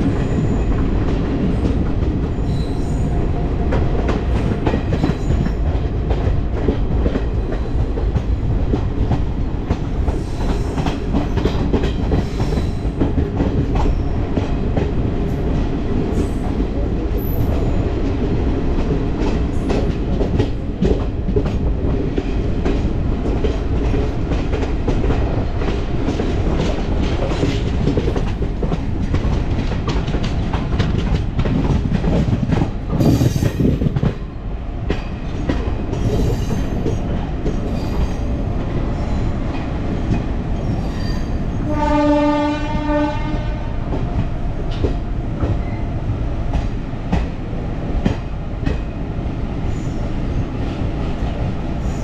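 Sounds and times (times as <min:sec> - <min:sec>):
train rumbling with wheels clacking: 0:00.0 - 0:52.0
train horn: 0:41.6 - 0:43.8.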